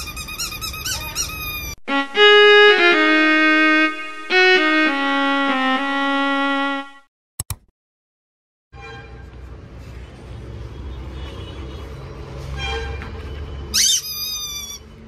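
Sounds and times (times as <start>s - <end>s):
quick mouse clicks: 7.4s - 7.7s.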